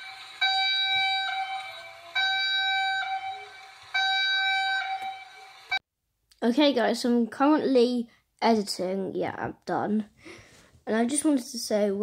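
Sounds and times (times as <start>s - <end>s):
emergency alert alarm tone: 0.0s - 5.8s.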